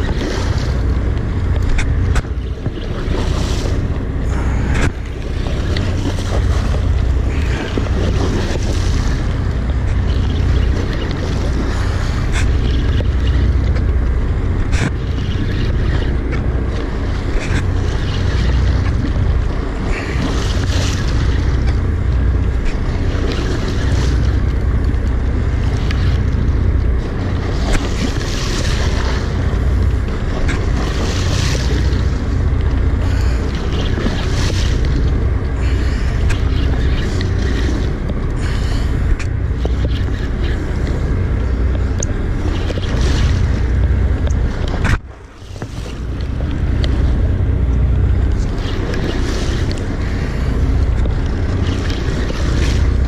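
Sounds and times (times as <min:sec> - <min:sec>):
water splashing against boat hull: 0:00.0 - 0:53.0
wind rumbling on microphone: 0:00.0 - 0:53.0.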